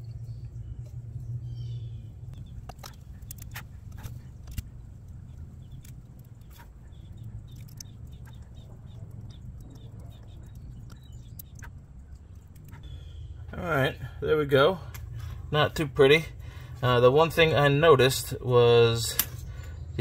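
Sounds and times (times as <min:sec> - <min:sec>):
steady low hum: 0:00.0 - 0:20.0
light clicks and ticks: 0:02.3 - 0:12.8.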